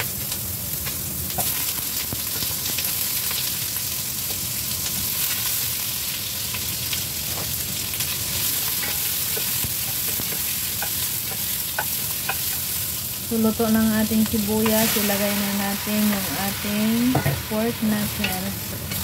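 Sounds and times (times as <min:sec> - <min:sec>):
onions sizzling in hot oil: 0:00.0 - 0:19.0.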